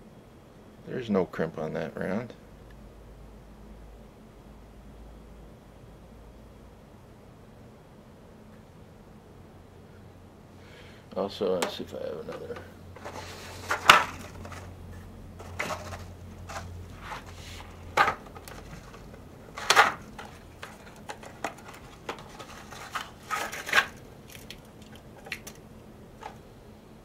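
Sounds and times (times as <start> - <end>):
ammunition boxes clicking and clattering: 11.6 - 14.7, 15.4 - 24.0.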